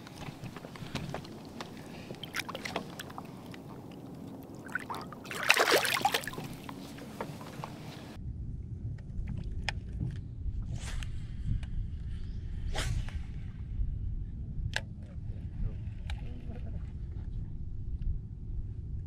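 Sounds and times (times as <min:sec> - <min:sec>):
small knocks and water sounds: 0:00.0 - 0:08.0
steady low rumble: 0:00.0 - 0:19.0
fish splashing: 0:01.2 - 0:07.9.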